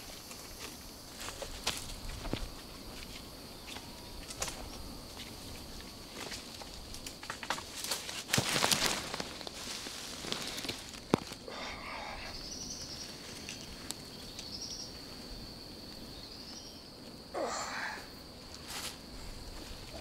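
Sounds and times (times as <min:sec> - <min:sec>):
rustles in dry leaf litter: 0:00.0 - 0:15.5
high-pitched insect drone: 0:10.3 - 0:20.0.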